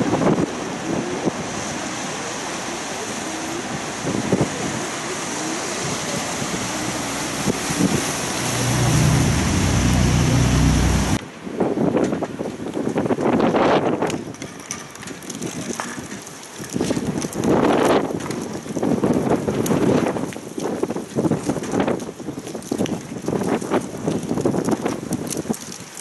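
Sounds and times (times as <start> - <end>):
wind noise on microphone: 0.0 - 2.1, 3.6 - 26.0
boat engine humming: 0.5 - 11.2
distant traffic: 0.5 - 11.2.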